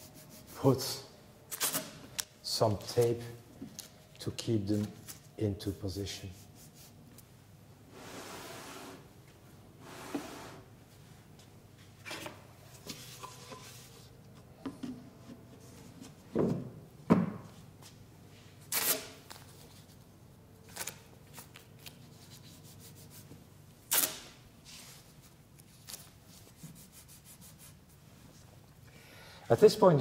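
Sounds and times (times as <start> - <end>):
tape tearing: 1.5 - 2.3, 18.7 - 19.7, 20.6 - 22.0, 23.9 - 24.4
tape pulled and rubbed on wood: 6.4 - 7.3, 12.0 - 14.4, 18.6 - 20.0, 20.7 - 28.7.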